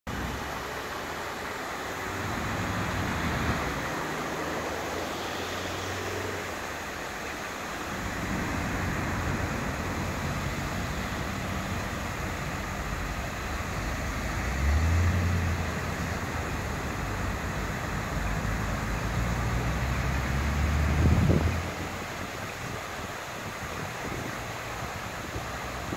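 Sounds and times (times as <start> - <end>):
fountain water splashing: 0.1 - 25.9.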